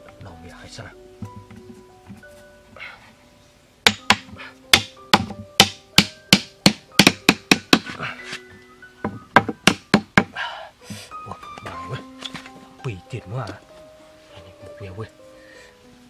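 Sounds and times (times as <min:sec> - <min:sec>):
background music: 0:00.0 - 0:16.0
tool tapping wooden stakes: 0:01.2 - 0:02.3, 0:03.8 - 0:08.4, 0:09.0 - 0:12.6.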